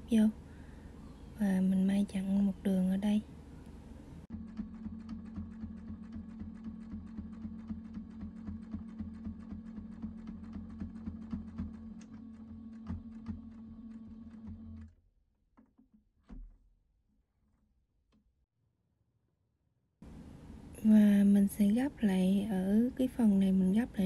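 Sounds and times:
sewing machine stitching: 4.3 - 14.9.

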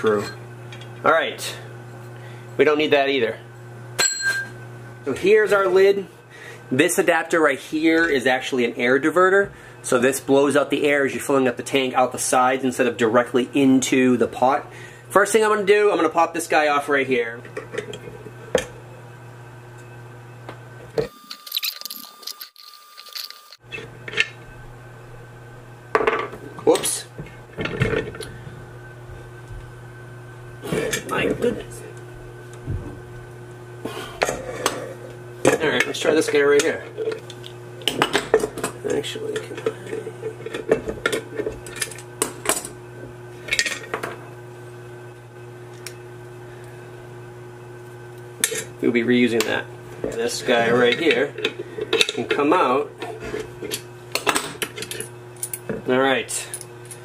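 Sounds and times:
low steady hum: 0.0 - 57.0
metal fittings clinking on metal lid: 21.3 - 23.6.

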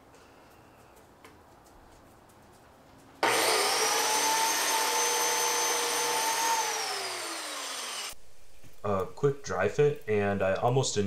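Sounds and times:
power tool motor whining: 3.2 - 8.2.

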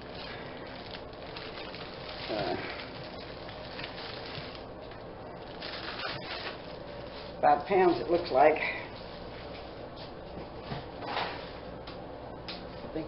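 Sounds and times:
plastic bags rustling: 0.0 - 9.5.

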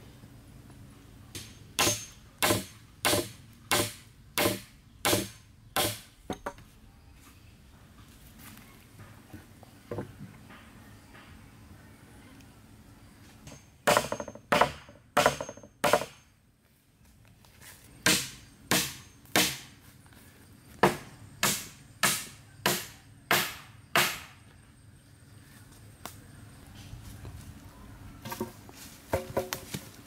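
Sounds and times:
hatchet striking wood: 1.3 - 6.6, 13.5 - 16.3, 18.0 - 19.7, 20.8 - 24.4.

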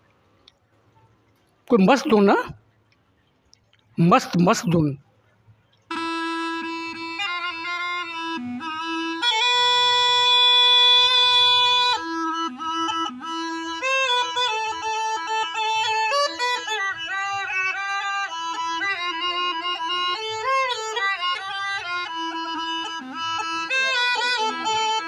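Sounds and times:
reed pipe playing folk tune: 5.9 - 25.0.

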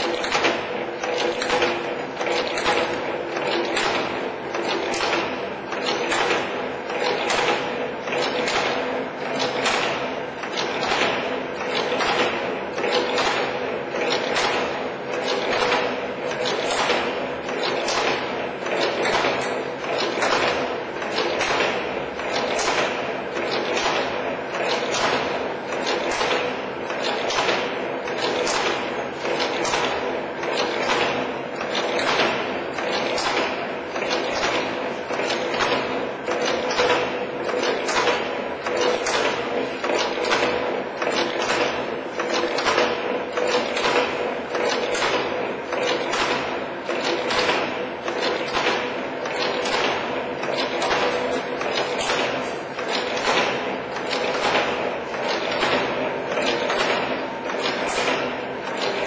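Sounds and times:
forming tools knocking: 14.1 - 59.0.

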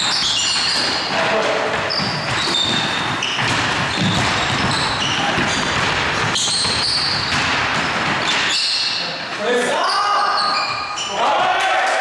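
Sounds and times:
basketball bouncing on floor: 0.0 - 8.7
sneakers squeaking: 0.0 - 11.4.

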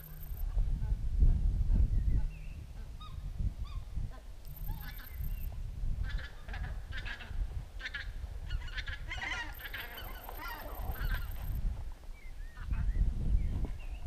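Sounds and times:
flock of geese honking: 6.1 - 11.5.

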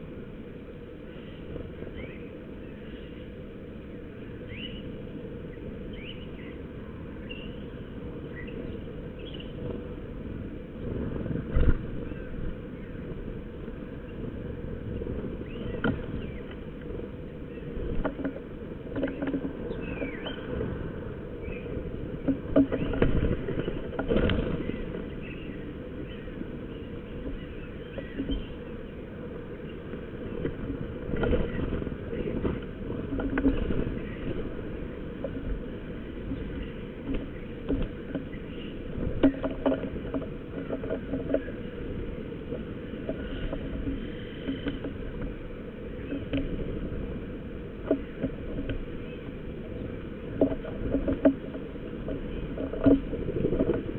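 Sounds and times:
steady low rumble: 0.0 - 53.9
thin bird calls: 1.0 - 9.6, 11.9 - 13.1, 15.4 - 18.3, 19.0 - 20.6, 21.3 - 30.6, 33.2 - 41.9
birds wing flutters and knocks: 5.2 - 53.9.

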